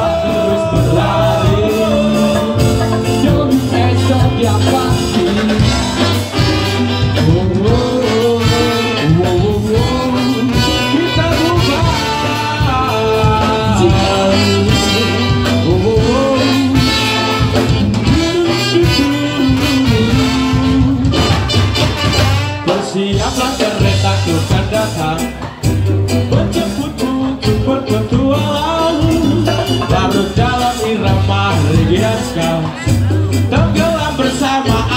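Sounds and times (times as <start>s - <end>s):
ska band playing live: 0.0s - 34.9s.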